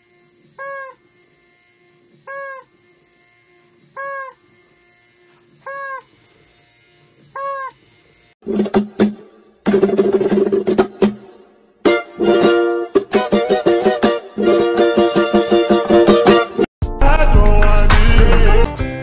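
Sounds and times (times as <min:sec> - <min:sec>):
rubber chicken toy squawking: 0:00.6 - 0:01.0, 0:02.2 - 0:02.7, 0:04.0 - 0:04.4, 0:05.6 - 0:06.1, 0:07.3 - 0:07.8.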